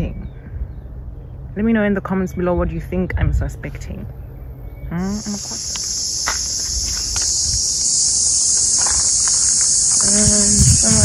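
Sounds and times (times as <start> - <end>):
insects shrilling: 4.9 - 11.0.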